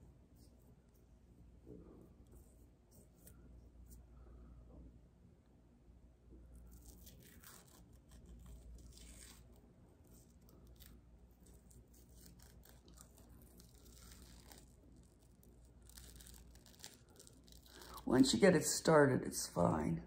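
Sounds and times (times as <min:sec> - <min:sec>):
face mask peeling off skin: 0:06.6 - 0:18.1.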